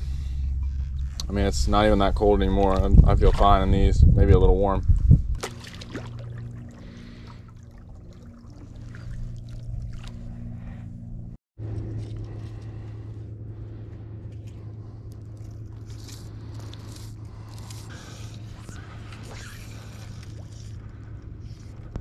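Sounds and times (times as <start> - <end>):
boat motor humming: 0.0 - 22.0
faint water splashes: 5.3 - 10.9.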